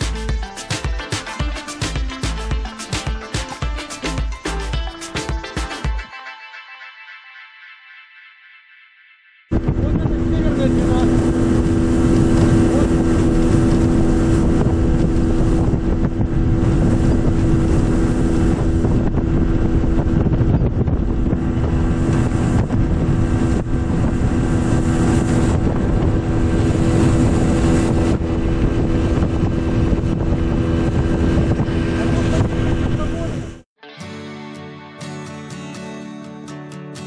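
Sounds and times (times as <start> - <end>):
water rushing past hull: 9.5 - 33.4
outboard motor droning: 9.5 - 33.6
wind buffeting microphone: 9.5 - 33.6.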